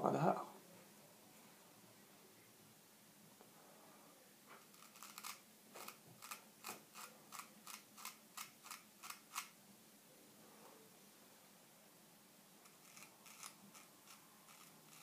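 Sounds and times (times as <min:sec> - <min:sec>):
razor scraping beard hair: 0:12.6 - 0:15.0.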